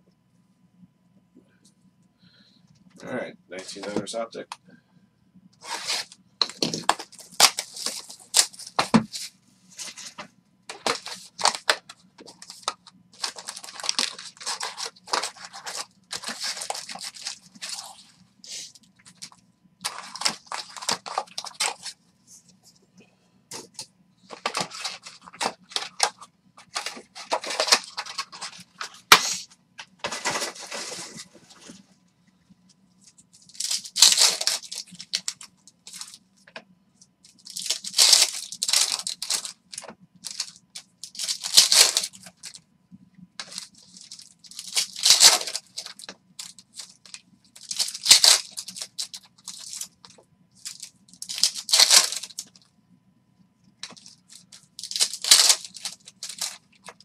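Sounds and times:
foil packs tearing: 5.6 - 9.2, 10.7 - 18.0, 19.8 - 21.9, 24.4 - 29.5, 33.5 - 36.2, 37.4 - 42.6, 43.4 - 49.9, 50.6 - 52.6, 53.8 - 57.0
foil wrappers crinkling: 5.6 - 22.0, 23.6 - 31.8, 33.0 - 36.2, 37.2 - 42.6, 43.4 - 52.7, 53.8 - 57.0.

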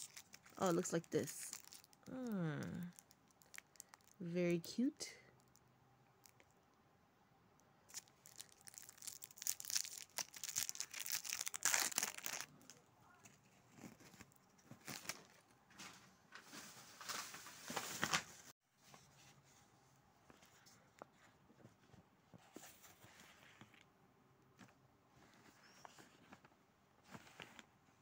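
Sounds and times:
plastic wrapper crinkling: 0.0 - 4.3, 5.4 - 5.6, 7.9 - 12.8, 13.7 - 15.4.

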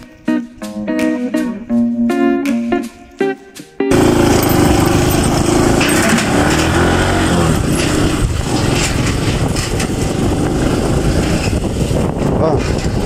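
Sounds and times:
short clatters on steel grating: 3.9 - 11.6
motorbike engine running: 3.9 - 13.0.

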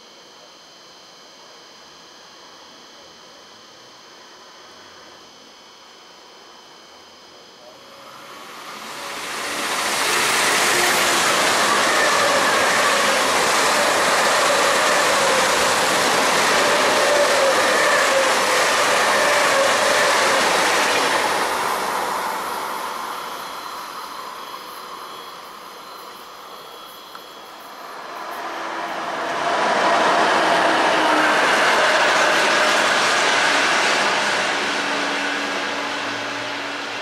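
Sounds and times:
electric train passing at speed: 7.7 - 37.0.

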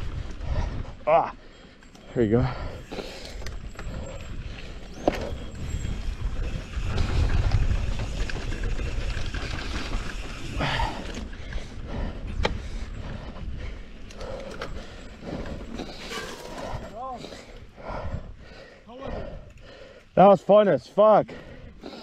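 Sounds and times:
wind buffeting microphone: 0.0 - 1.4, 2.2 - 20.0
bike rattling over bumps: 0.0 - 18.7
tyres rolling over dirt: 3.0 - 11.4, 14.4 - 17.4.

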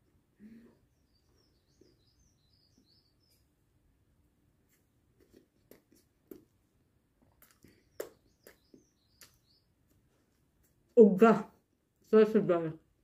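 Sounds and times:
faint high wavering chirp: 0.4 - 3.5
mouth clicks from chewing: 7.2 - 9.4.

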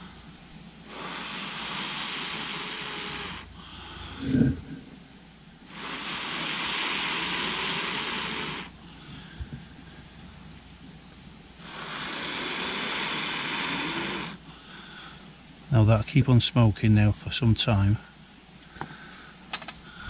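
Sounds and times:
person blowing long breaths: 0.9 - 4.9, 18.7 - 20.0
short low thump: 4.2 - 5.0.

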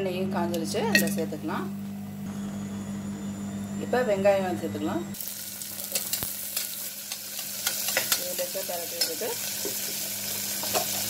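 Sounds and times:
onions sizzling in oil: 5.2 - 11.0.

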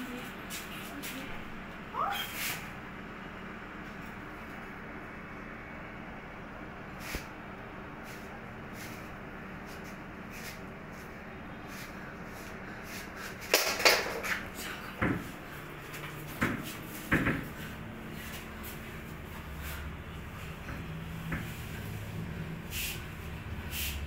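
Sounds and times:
steady low hum: 0.0 - 24.0
knocks on wooden cabinet: 16.4 - 17.5.

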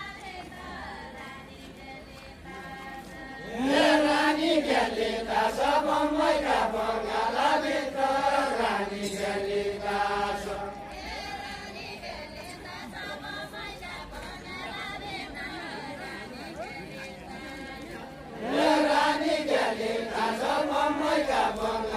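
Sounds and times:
voices singing folk song: 0.0 - 21.9.

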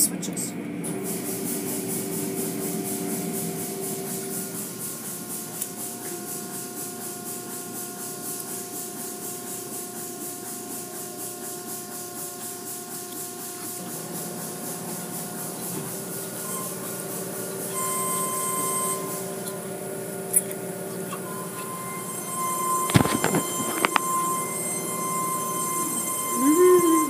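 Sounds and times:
faint machine tones: 16.1 - 27.0.

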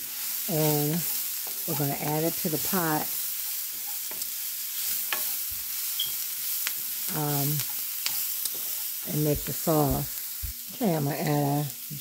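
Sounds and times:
vegetables sizzling in oil: 0.0 - 12.0
spoon scraping a frying pan: 0.6 - 9.7.

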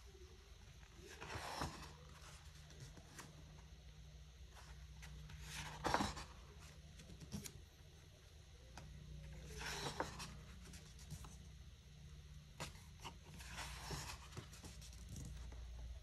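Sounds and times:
faint low hum: 0.0 - 16.0
pages turning: 1.0 - 3.4, 4.5 - 7.6, 9.4 - 11.4.

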